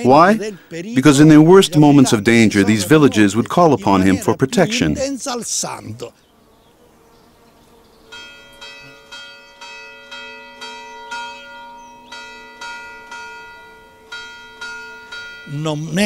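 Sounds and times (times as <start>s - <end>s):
church bells ringing: 8.1s - 16.0s.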